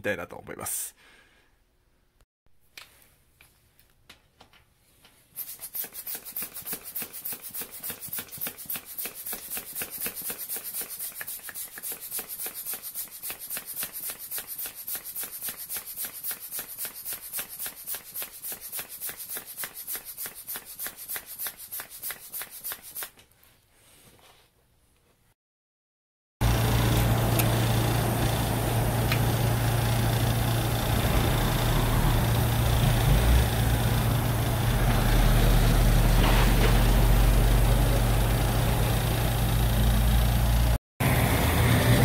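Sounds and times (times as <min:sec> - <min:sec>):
hand bicycle pump strokes: 0:05.4 - 0:23.2.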